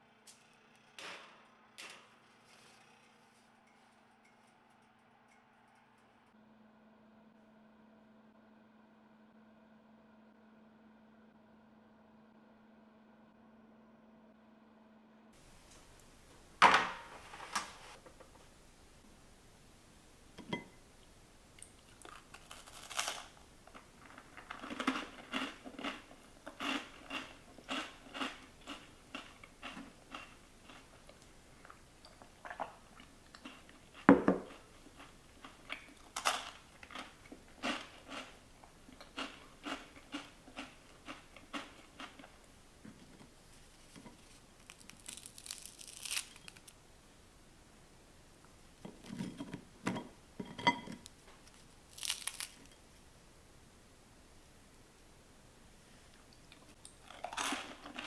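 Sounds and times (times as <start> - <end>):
cookies crunching: 21.6 - 42.5, 43.2 - 46.8, 50.5 - 52.9, 56.3 - 58.0
cookie snapping with crackle: 44.6 - 46.8, 51.5 - 52.8.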